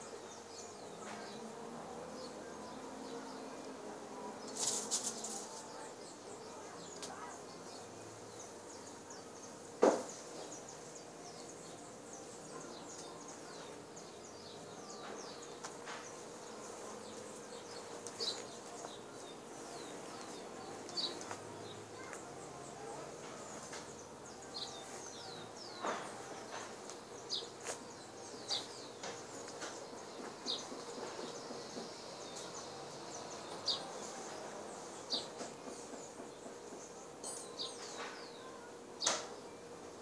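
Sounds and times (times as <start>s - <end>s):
small birds chirping: 0.0s - 40.0s.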